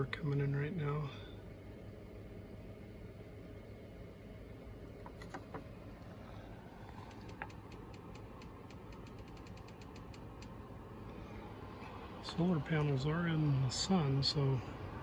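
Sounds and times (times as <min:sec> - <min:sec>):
low hum of running equipment: 0:00.0 - 0:15.0
faint clicks: 0:07.0 - 0:10.6
rapid faint ticks: 0:07.0 - 0:10.6.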